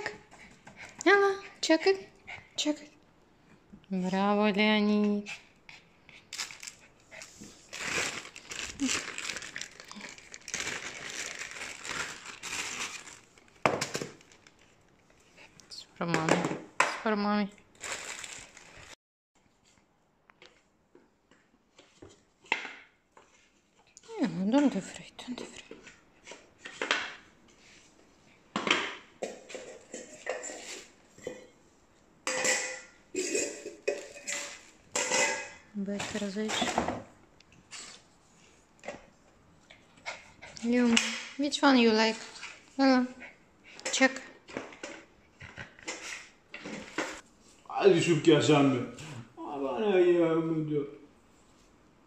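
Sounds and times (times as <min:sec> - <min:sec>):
gift wrapping crinkling: 0:06.3 - 0:15.2, 0:17.7 - 0:19.0.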